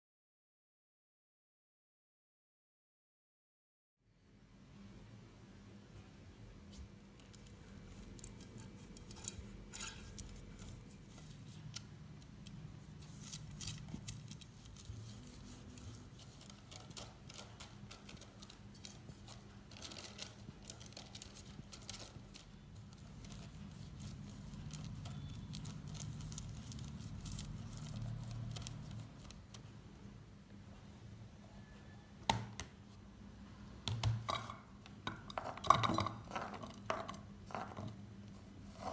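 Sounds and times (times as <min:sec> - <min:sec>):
baking paper crinkling: 0:07.2 - 0:29.7.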